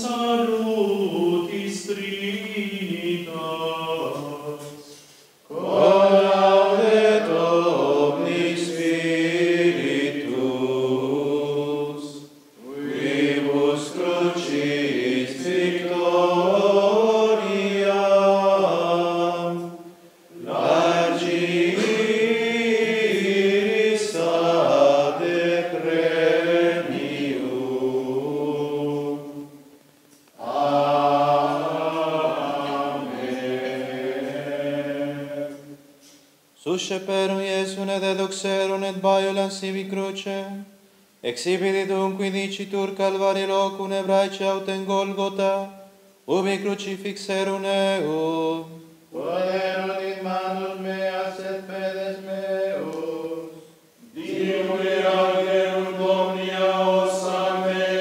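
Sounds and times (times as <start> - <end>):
group singing plainchant: 0.0 - 29.8, 30.4 - 36.2, 47.6 - 58.0.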